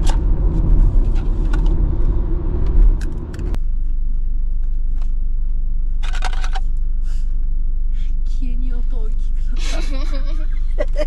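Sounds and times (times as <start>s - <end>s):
car rumble inside cabin: 0.0s - 11.0s
steady low hum: 0.0s - 11.0s.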